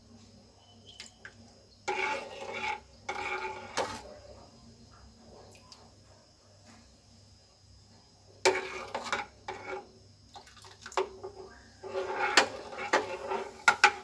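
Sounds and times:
spoon scraping and clinking in pan: 1.8 - 4.1, 8.4 - 9.8, 11.0 - 14.0.

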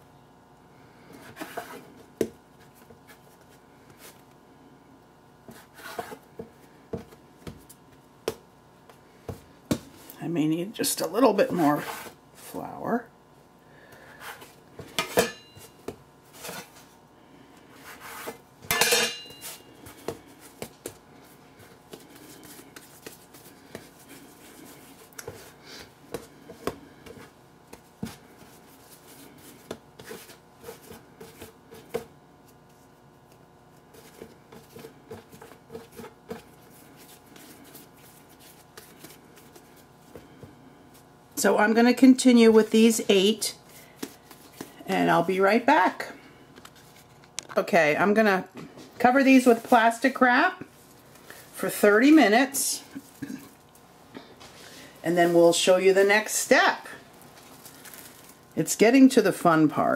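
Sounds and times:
scraper cutting dough: 5.5 - 6.2
hands rubbing dough: 17.6 - 18.4, 19.4 - 41.6, 42.2 - 45.5, 49.0 - 56.4.

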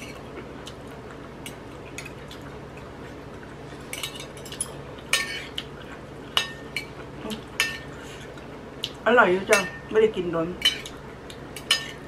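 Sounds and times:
cutlery clinking on a plate: 11.6 - 12.0.

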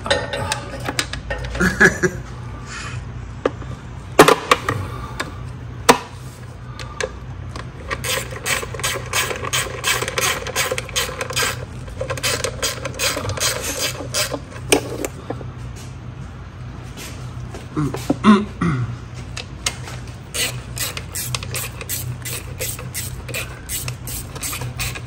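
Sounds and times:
ratchet clicking: 7.9 - 15.1, 20.3 - 25.0.

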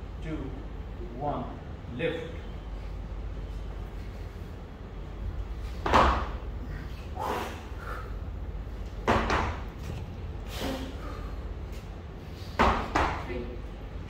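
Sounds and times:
forced breaths: 6.6 - 8.8, 10.4 - 12.6.

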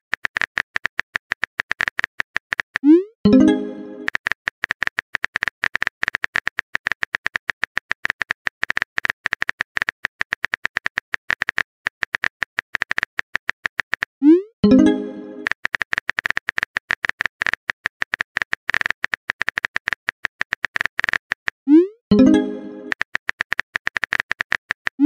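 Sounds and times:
keyboard typing clicks: 0.1 - 25.0
message chime: 3.3 - 4.1, 14.6 - 15.4, 22.1 - 22.9.

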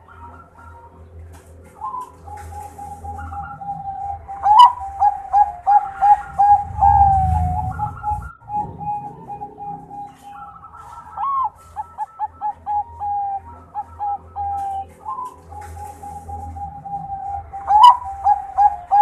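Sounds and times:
dove cooing: 0.0 - 19.0.

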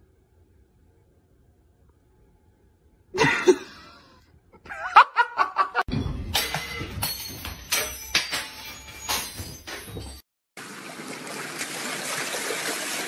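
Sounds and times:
person laughing: 3.2 - 5.9
sharp knocks and clatter: 5.9 - 10.2.

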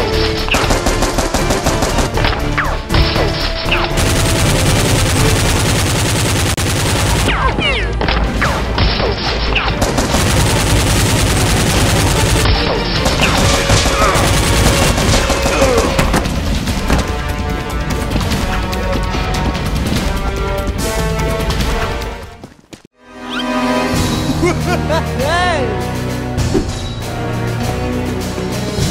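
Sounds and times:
background music: 0.0 - 28.9
automatic gunfire bursts: 0.5 - 2.2, 3.9 - 7.4, 9.8 - 16.0.

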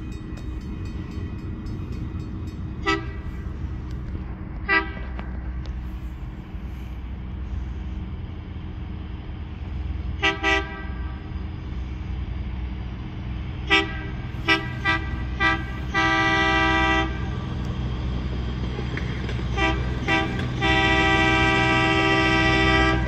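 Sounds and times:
low engine rumble: 0.0 - 23.0
vehicle horn toots: 19.5 - 23.0.

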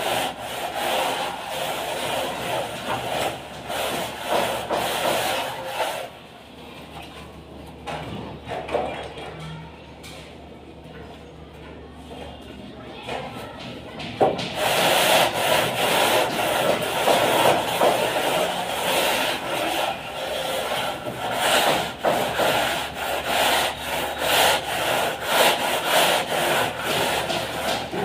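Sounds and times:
rule scraping wet plaster: 0.0 - 6.1, 14.4 - 28.0.

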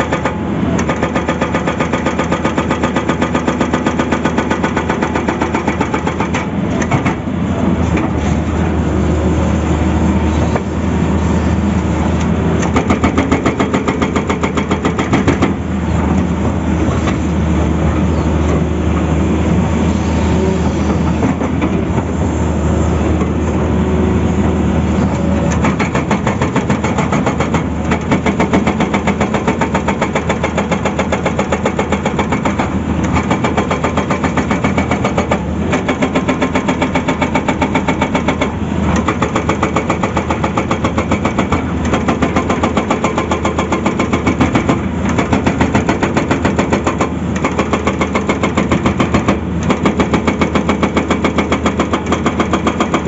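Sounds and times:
hydraulic breaker hammering rock: 0.0 - 7.3, 12.6 - 16.1, 25.5 - 53.0
diesel engine under load: 0.0 - 53.0.

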